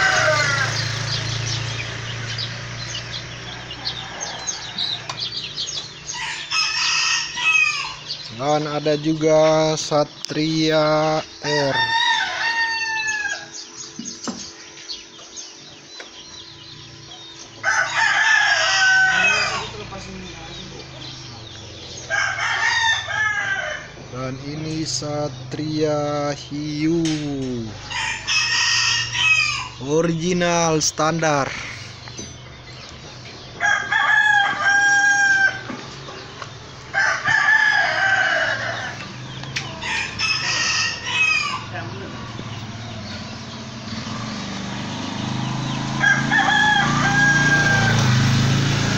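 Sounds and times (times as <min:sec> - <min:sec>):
rooster crowing: 0:00.0 - 0:09.0, 0:11.4 - 0:13.9, 0:17.5 - 0:24.1, 0:27.8 - 0:29.8, 0:33.4 - 0:36.2, 0:36.8 - 0:48.9
birds chirping: 0:00.0 - 0:48.9.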